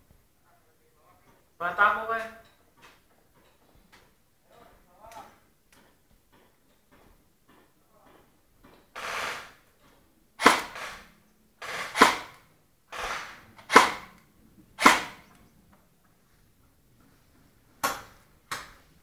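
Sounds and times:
short hissing bursts: 0:09.0 - 0:09.6, 0:10.4 - 0:12.3
airsoft gun shots: 0:10.4 - 0:14.2, 0:14.8 - 0:15.2.

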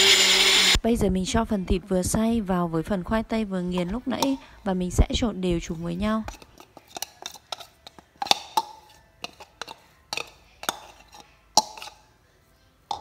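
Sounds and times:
metal spoon scraping blender jar: 0:00.0 - 0:00.8, 0:03.8 - 0:04.5, 0:05.7 - 0:12.2
spoon clinking against ceramic bowl: 0:06.2 - 0:12.2.

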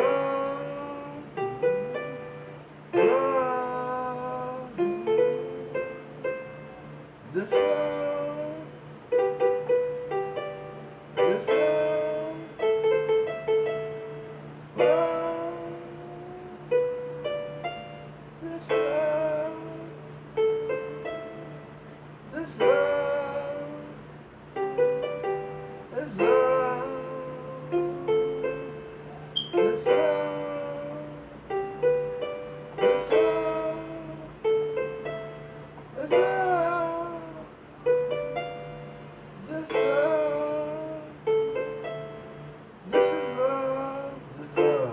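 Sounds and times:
steady low hum: 0:00.0 - 0:44.9
electronic keyboard chords and notes: 0:24.6 - 0:44.9.

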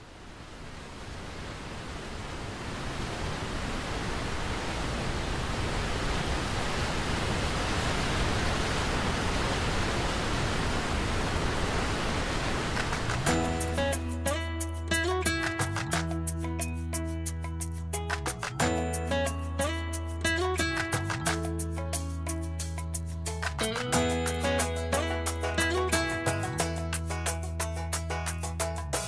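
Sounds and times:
waterfall rushing: 0:01.1 - 0:15.3
plucked guitar music: 0:13.3 - 0:29.0.

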